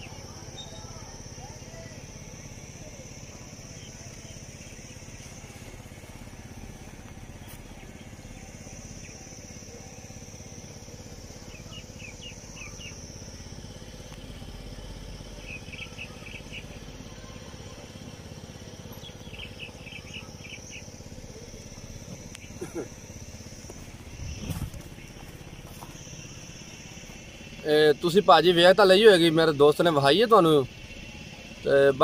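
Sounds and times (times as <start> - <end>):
birds chirping: 0.0 - 32.0
high insect drone: 0.0 - 32.0.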